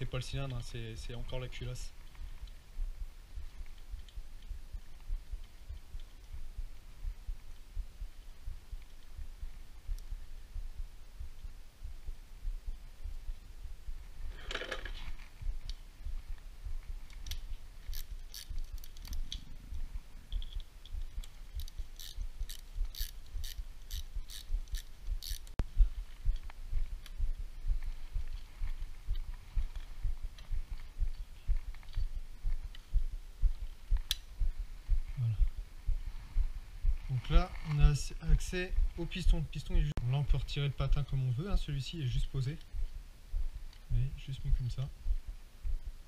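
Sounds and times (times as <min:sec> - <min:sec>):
sharp metallic clicks: 0:17.1 - 0:25.6.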